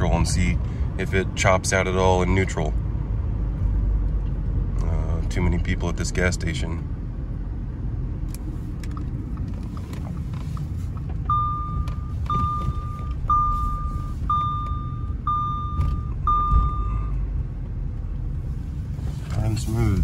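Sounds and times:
car engine low rumble: 0.0s - 20.0s
high electronic beep: 11.3s - 17.1s.

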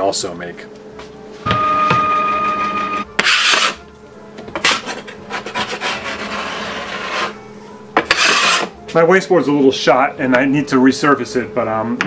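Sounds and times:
high-pitched tone: 1.4s - 3.2s
scraper dragged across board: 3.2s - 3.8s, 4.6s - 7.4s, 8.0s - 8.7s.

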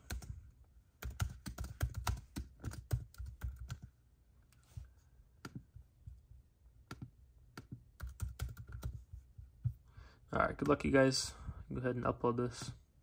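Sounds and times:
laptop keyboard typing: 0.0s - 0.4s, 1.0s - 4.0s, 6.8s - 9.2s.

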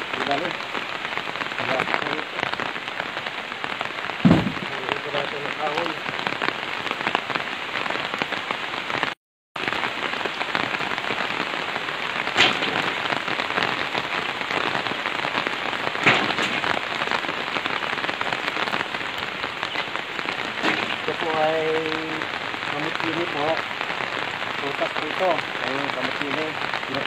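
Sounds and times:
dense rain falling: 0.0s - 27.0s
firewood knocking: 4.2s - 5.0s, 12.3s - 13.2s, 16.0s - 16.9s, 19.8s - 21.4s.

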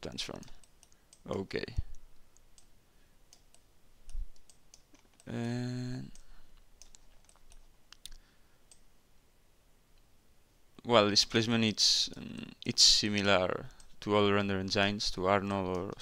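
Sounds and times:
computer mouse clicking: 0.4s - 2.7s, 3.3s - 5.4s, 6.1s - 8.9s, 15.4s - 16.0s.

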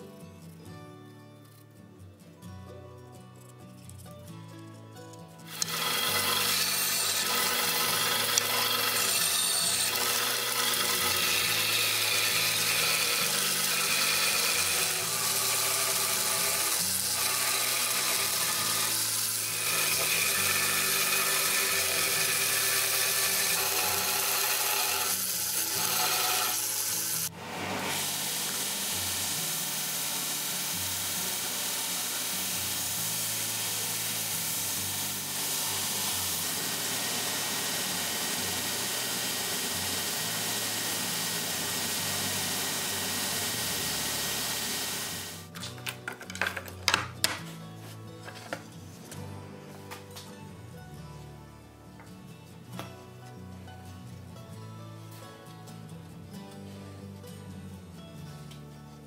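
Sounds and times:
band saw cutting wood: 5.5s - 45.5s
belt sander sanding wood: 5.5s - 45.5s.

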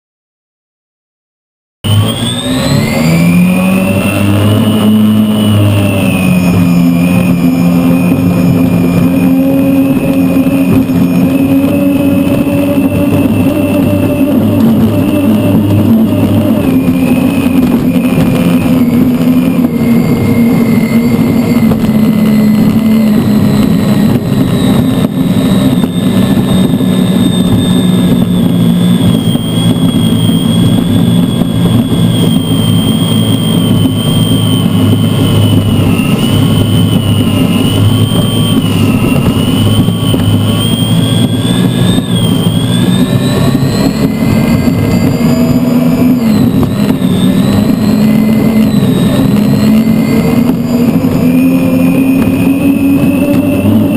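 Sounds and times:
turbine engine high whine: 1.8s - 53.9s
rush of wind and spray: 1.9s - 53.9s.

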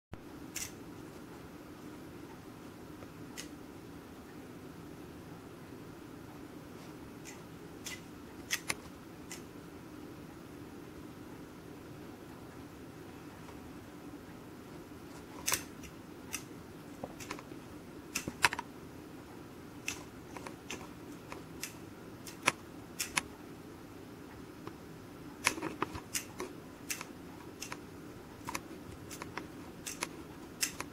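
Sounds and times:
faint steady hiss: 0.2s - 30.9s.

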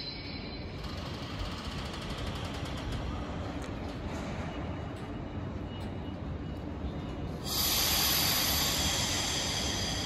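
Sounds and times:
electric train rumble: 7.3s - 10.0s
compressed air hiss: 7.4s - 10.0s.

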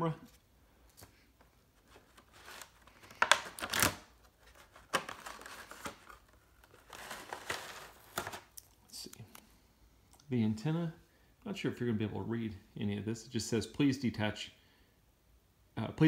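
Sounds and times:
plastic packaging crinkling: 1.8s - 9.2s.

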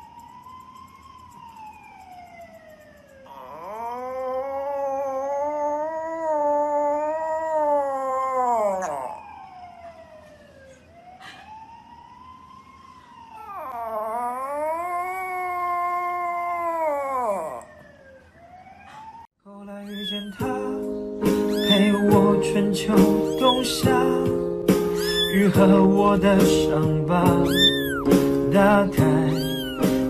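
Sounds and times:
dog howling: 3.3s - 9.4s, 13.4s - 17.8s, 19.8s - 20.8s, 21.4s - 24.2s, 24.9s - 25.8s, 27.4s - 28.1s, 29.0s - 30.0s.

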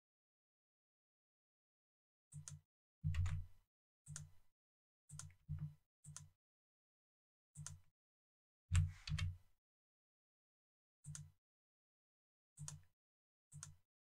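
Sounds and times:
keyboard and mouse clicks: 2.3s - 3.5s, 5.1s - 6.3s, 7.6s - 7.9s, 8.8s - 9.4s, 12.6s - 12.9s, 13.5s - 13.8s.

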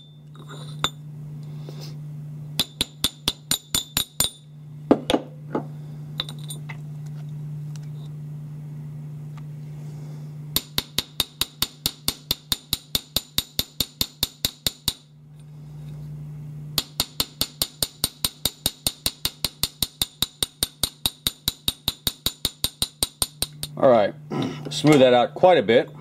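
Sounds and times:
small hammer tapping on steel: 16.8s - 23.8s.

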